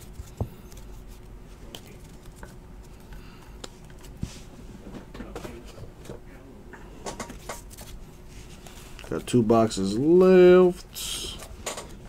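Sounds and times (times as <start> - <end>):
trading cards being handled: 0.0 - 4.5, 7.1 - 9.4
steady low hum: 0.0 - 12.0.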